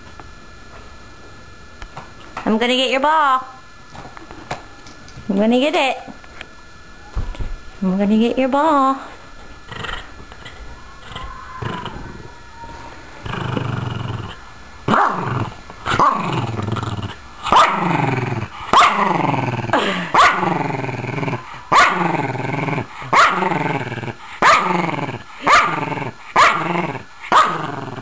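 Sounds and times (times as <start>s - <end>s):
dog growling: 9.7s - 12.4s, 13.2s - 28.0s
dog growl-barks: 13.2s - 28.0s.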